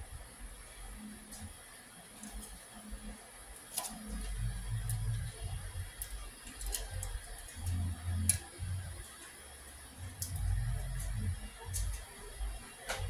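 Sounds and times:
printer motors rumbling: 0.0 - 13.0.

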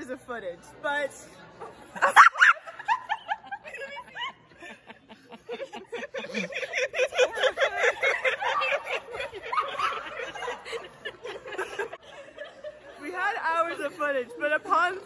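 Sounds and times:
young women laughing: 1.9 - 13.1.

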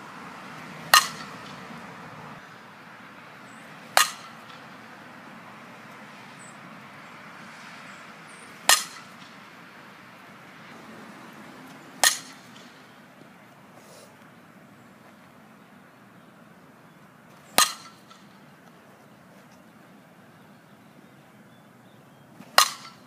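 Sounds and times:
bat striking ball: 0.9 - 1.6, 3.8 - 4.8, 8.5 - 9.4, 12.0 - 12.9, 17.5 - 18.4, 22.4 - 23.0.

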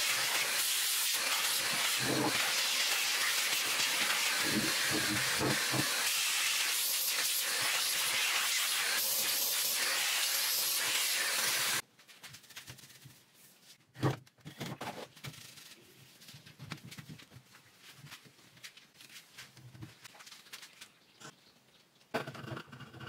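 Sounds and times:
steamer hissing: 0.0 - 11.8
soft rubbing and handling: 11.9 - 13.9, 14.6 - 21.0.

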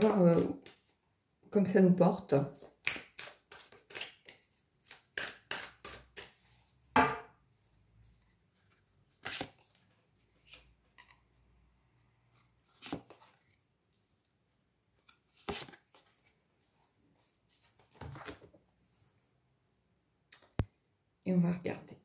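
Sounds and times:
cards shuffling and snapping: 0.0 - 0.9, 2.6 - 6.5, 9.2 - 9.8, 12.7 - 13.4, 15.0 - 16.1.

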